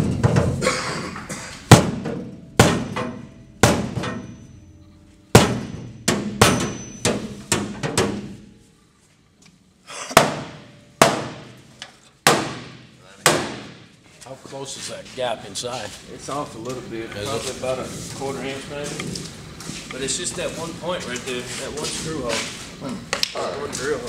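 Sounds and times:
hammer blows on sheet metal: 1.7s - 4.4s, 5.3s - 8.5s, 10.1s - 13.9s.

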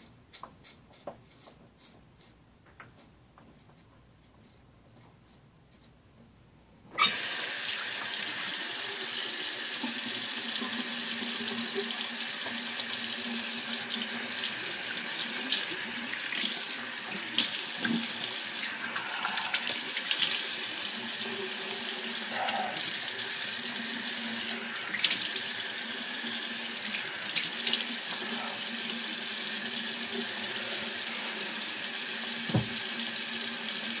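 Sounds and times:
tap water running into sink: 7.0s - 34.0s.

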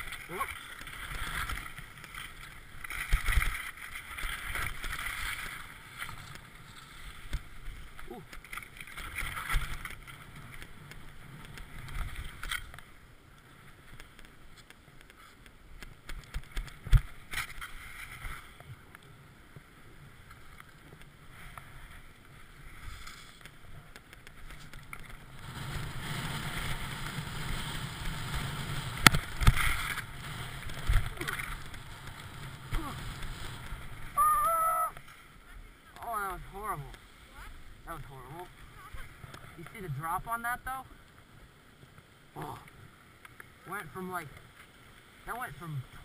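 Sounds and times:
skis scraping over packed snow: 0.0s - 46.0s
air rushing on camera: 24.4s - 35.0s.

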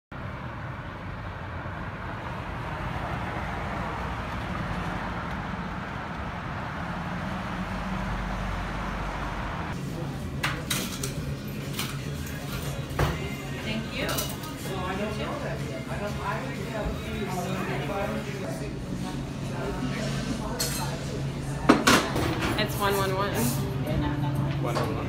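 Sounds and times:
city street traffic: 0.1s - 25.0s
coffee shop clatter: 9.8s - 15.1s, 19.0s - 25.0s.

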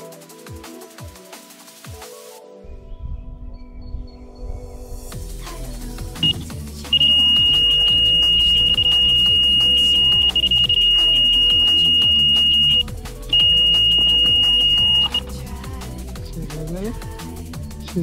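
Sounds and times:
electronic bite alarm tone: 6.2s - 15.2s
electronic music: 6.2s - 15.2s.

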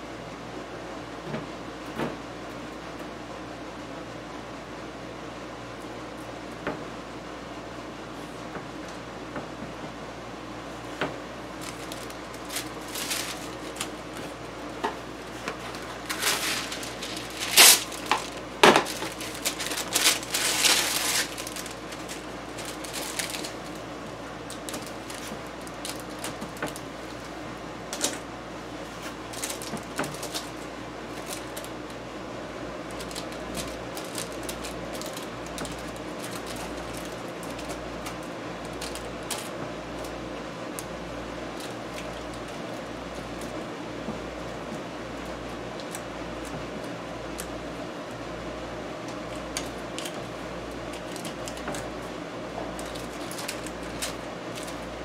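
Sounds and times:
rustling and clatter: 10.9s - 28.2s, 28.8s - 31.9s.

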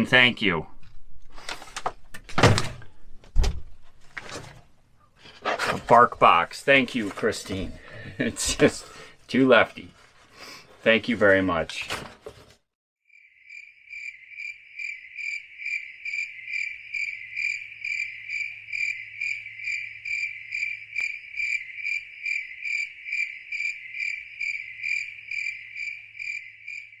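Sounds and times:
insect chirping: 13.1s - 27.0s.

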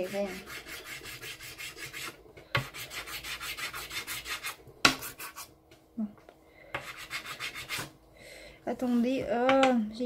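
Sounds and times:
pastel scratching on paper: 0.0s - 5.5s, 6.8s - 7.9s.

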